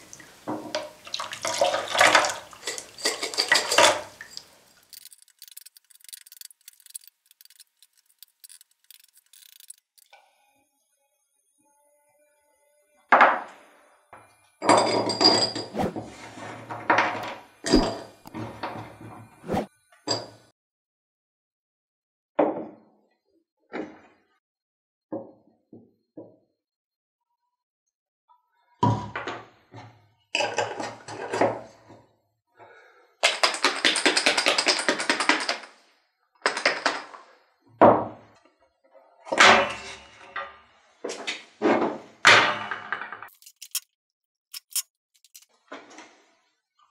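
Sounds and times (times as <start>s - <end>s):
discs clinking in glass jar: 2.2s - 10.1s.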